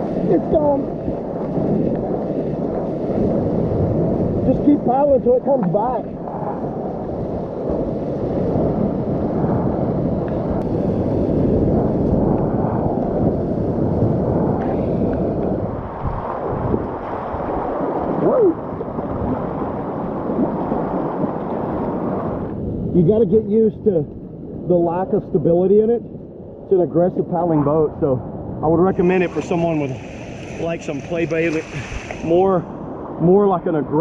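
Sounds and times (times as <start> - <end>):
whitewater rushing: 28.7 - 33.6.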